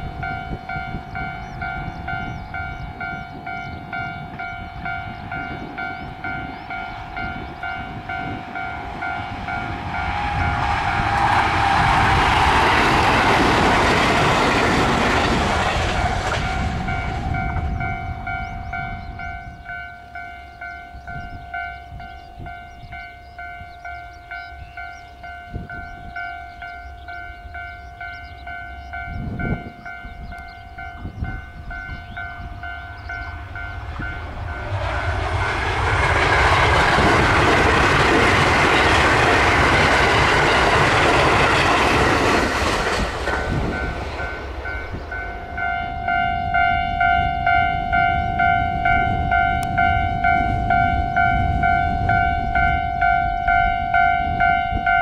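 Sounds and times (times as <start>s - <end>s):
departing train: 0.0s - 55.0s
train wheels on rails: 0.0s - 55.0s
level crossing bell ringing: 43.5s - 55.0s.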